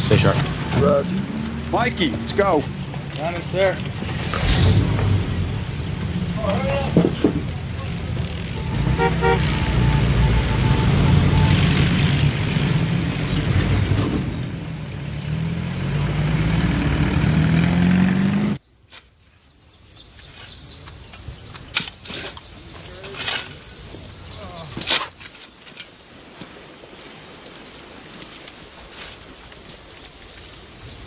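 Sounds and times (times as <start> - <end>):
truck engine pulling away: 0.0 - 18.6.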